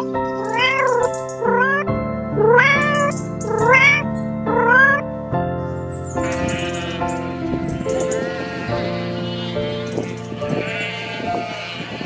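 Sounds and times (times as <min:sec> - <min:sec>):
cat meowing: 0:00.0 - 0:05.0, 0:06.2 - 0:08.8
background music: 0:00.0 - 0:12.0.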